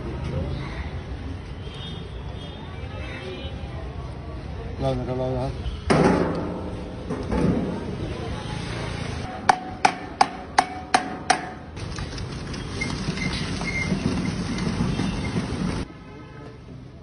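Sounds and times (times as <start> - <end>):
metallic knocks of steel barrel: 9.4 - 11.8.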